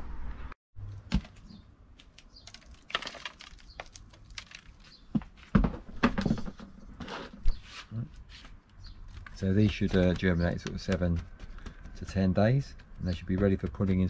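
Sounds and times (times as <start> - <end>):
plastic plant pots clicking: 0.9 - 5.3, 8.6 - 14.0
rustling: 1.1 - 14.0.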